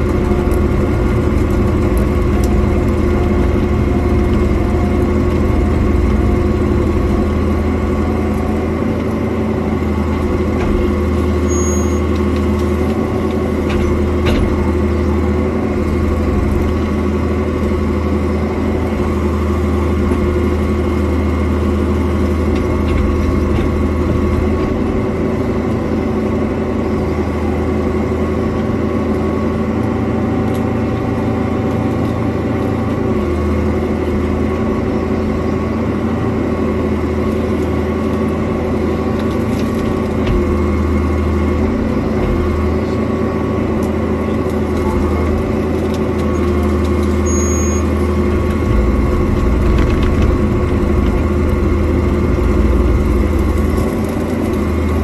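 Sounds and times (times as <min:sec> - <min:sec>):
excavator diesel engine running: 0:00.0 - 0:55.0
bucket working through brush: 0:44.4 - 0:55.0.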